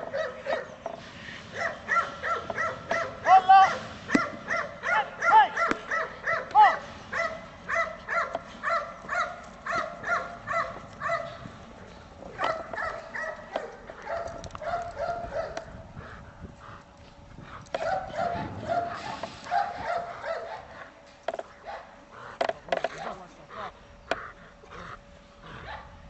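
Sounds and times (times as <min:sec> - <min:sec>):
dog barking: 0:00.1 - 0:00.8, 0:01.5 - 0:11.4, 0:12.3 - 0:15.8, 0:17.7 - 0:20.9, 0:25.6 - 0:26.0.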